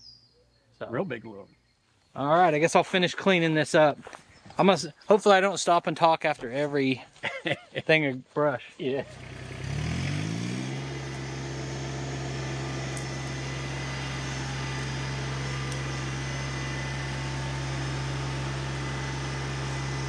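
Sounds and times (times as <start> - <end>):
tractor diesel engine revving: 9.0 - 20.0.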